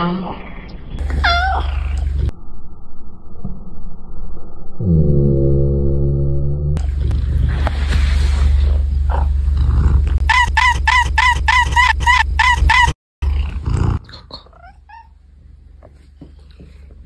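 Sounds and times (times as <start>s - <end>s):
low drone: 0.0s - 13.6s
pitched animal calls: 1.1s - 2.1s, 10.2s - 15.2s.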